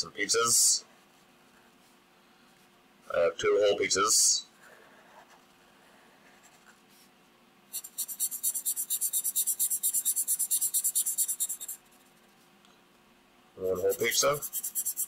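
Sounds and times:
marker scribbling on paper: 7.7 - 12.2, 13.6 - 15.0.

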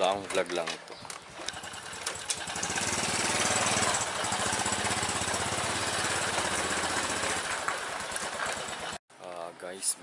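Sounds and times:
small motorcycle engine running: 1.4 - 9.0.

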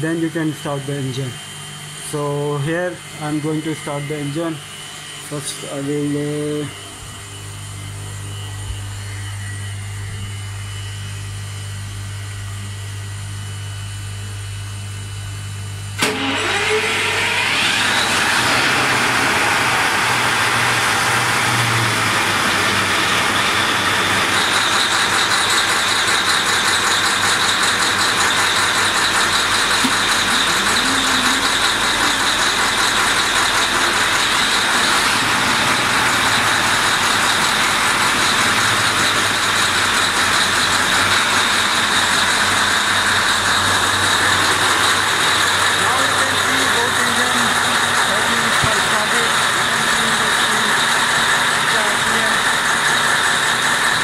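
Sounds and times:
engine room machinery hum: 0.0 - 54.0
high steady whine: 0.0 - 54.0
marine diesel engine running: 16.0 - 54.0.

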